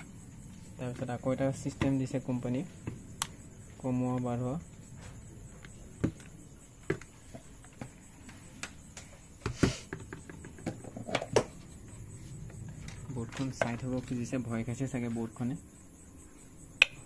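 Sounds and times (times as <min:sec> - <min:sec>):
handling clicks and knocks: 0:12.6 - 0:14.4.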